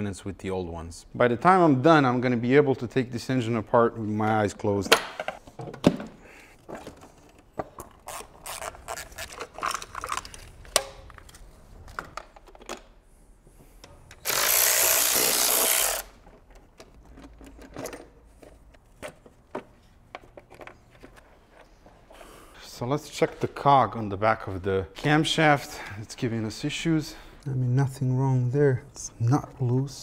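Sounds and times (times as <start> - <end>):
tools and engine parts clattering: 16.2 - 21.1.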